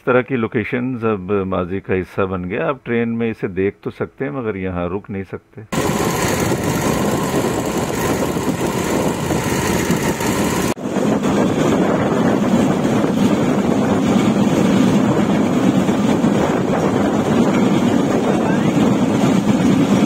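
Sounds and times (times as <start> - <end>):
motor trolley on railway track: 5.8 - 20.0
wind on microphone: 5.8 - 20.0.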